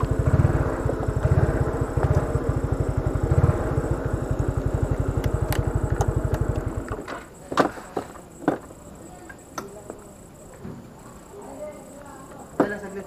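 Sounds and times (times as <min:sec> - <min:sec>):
scooter engine idling: 0:00.0 - 0:07.4
sharp clicks and knocks: 0:05.1 - 0:08.7.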